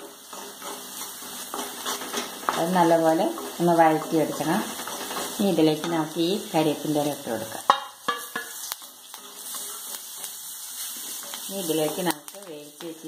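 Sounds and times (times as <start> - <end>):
food sizzling in oil: 0.0 - 13.0
spatula stirring in a pan: 0.0 - 13.0
spatula knocking on a pan: 7.6 - 8.6.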